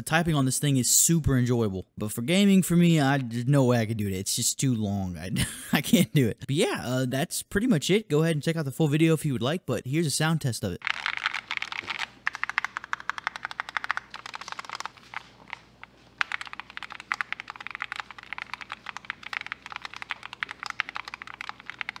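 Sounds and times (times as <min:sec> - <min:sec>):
mechanical keyboard keystrokes clacking: 0:10.9 - 0:14.9, 0:16.2 - 0:22.0.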